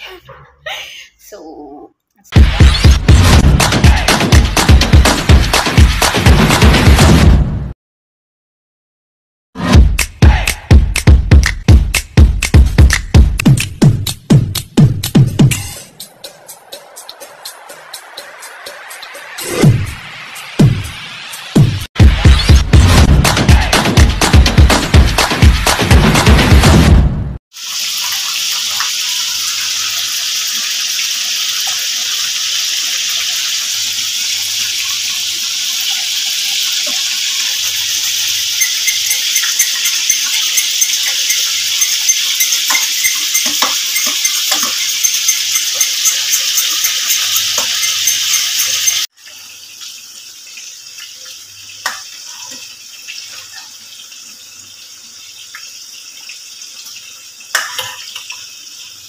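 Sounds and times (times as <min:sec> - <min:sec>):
pot boiling hard: 0:27.5 - 0:51.0
metal spoon clinking saucepan: 0:38.6 - 0:49.0.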